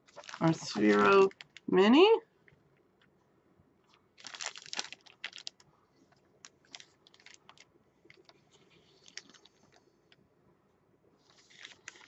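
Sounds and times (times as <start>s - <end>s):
plastic packaging crinkling: 0.0s - 1.8s, 3.9s - 9.8s, 11.2s - 12.0s.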